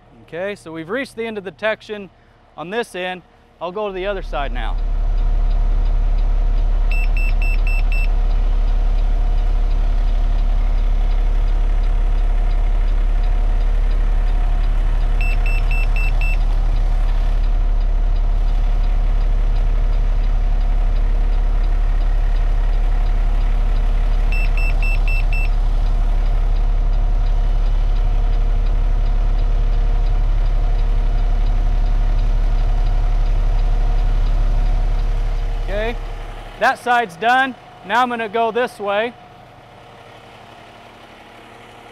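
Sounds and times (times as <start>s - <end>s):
truck engine idling: 0.0s - 41.9s
short high beeps: 6.9s - 8.1s, 15.2s - 16.4s, 24.3s - 25.5s.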